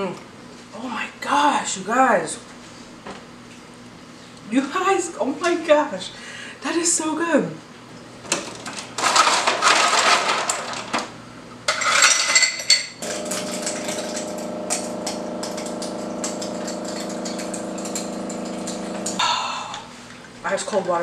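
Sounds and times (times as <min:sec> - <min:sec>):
rummaging in a freezer: 0:08.8 - 0:11.0
electric hum: 0:13.0 - 0:19.3.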